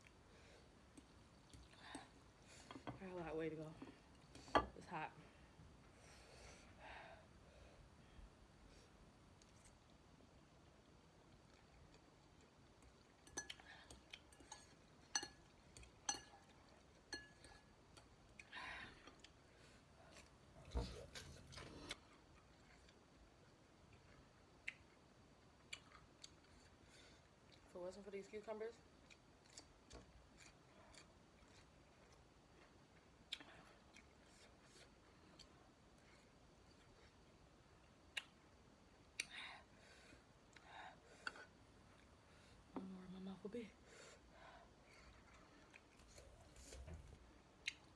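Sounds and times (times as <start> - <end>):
fork clinking against glass bowl: 14.4 - 15.4, 16.1 - 16.4, 17.1 - 17.6
chewing crisp cucumber: 21.1 - 27.7, 28.8 - 39.3.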